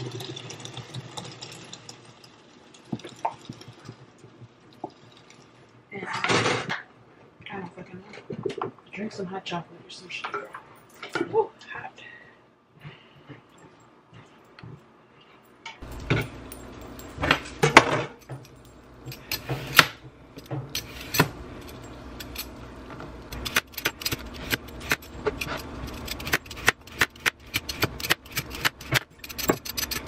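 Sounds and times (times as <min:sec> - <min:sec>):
kitchenware knocking and clinking: 0:15.8 - 0:19.8.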